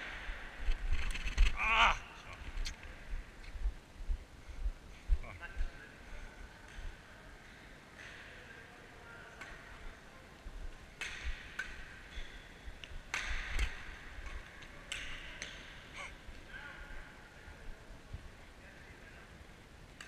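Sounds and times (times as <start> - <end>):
racket hitting shuttlecock: 11.0 - 15.7.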